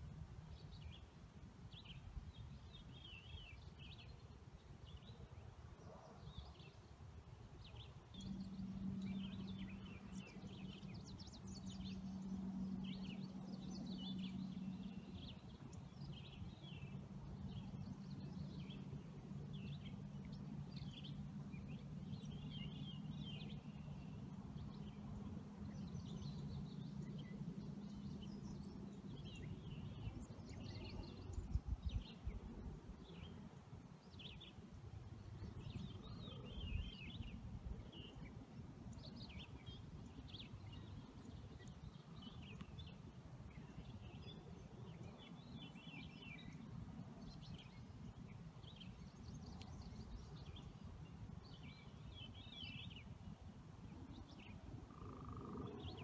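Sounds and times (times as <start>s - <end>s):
steady low hum: 7.9s - 33.1s.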